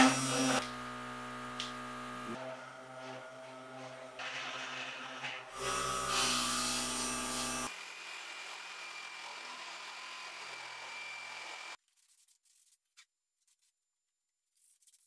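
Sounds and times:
compressor humming: 0.0 - 4.0
rotary tool whining: 0.0 - 11.8.

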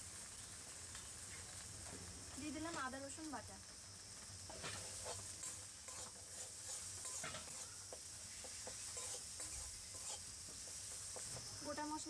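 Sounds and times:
paste sizzling in hot oil: 0.0 - 12.0
metal spatula scraping pan: 4.5 - 10.3.

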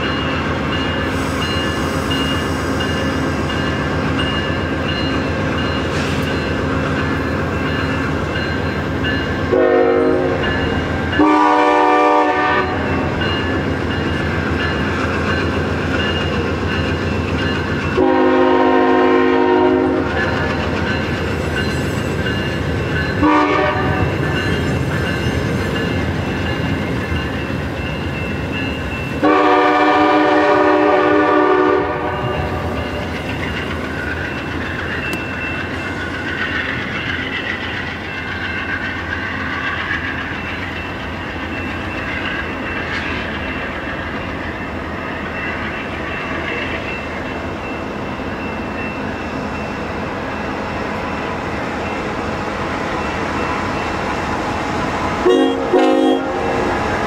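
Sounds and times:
train coaches clattering on rails: 0.0 - 57.0
train air horn: 9.5 - 10.4, 11.2 - 12.9, 18.0 - 20.2, 23.2 - 24.1, 29.2 - 32.6, 55.2 - 56.6.

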